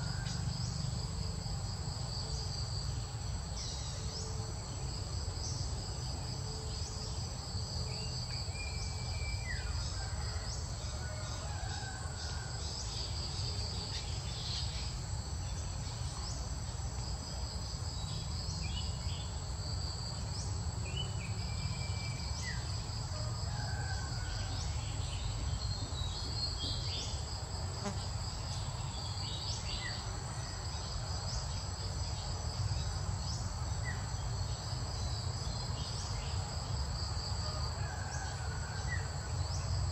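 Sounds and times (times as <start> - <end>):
crickets and insects buzzing: 0.0 - 39.9.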